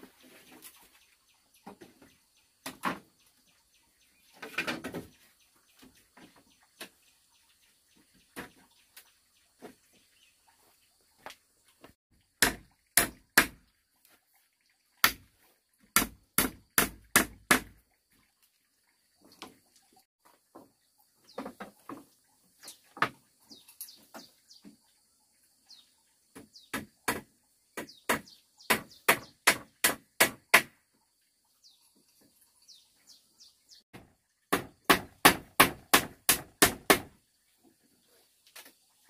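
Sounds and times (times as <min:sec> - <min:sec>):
hammer striking bamboo: 0:12.4 - 0:13.6, 0:15.0 - 0:15.3, 0:16.0 - 0:17.8, 0:26.7 - 0:30.8, 0:34.5 - 0:37.2
birds chirping: 0:20.6 - 0:29.8, 0:31.4 - 0:33.9.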